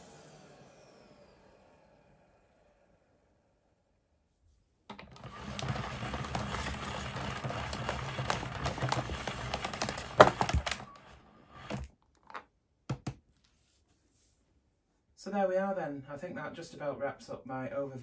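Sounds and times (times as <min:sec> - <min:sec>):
vacuum cable rewinding clatter: 0:04.9 - 0:12.0.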